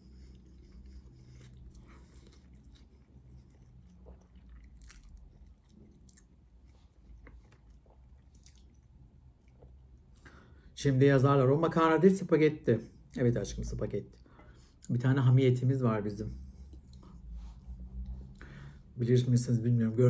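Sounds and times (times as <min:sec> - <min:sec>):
chewing spaghetti: 0:00.0 - 0:10.3, 0:16.6 - 0:17.3.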